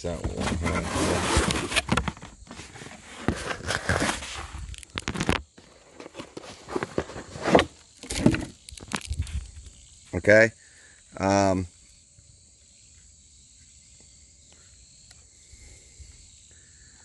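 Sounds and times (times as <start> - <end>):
cardboard packaging rustling: 0.4 - 9.4.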